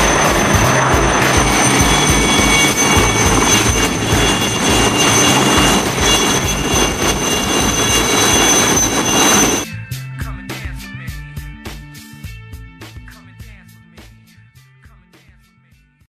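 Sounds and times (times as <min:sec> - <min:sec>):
helicopter engine whine: 0:00.0 - 0:09.7
helicopter rotors beating: 0:00.0 - 0:09.7.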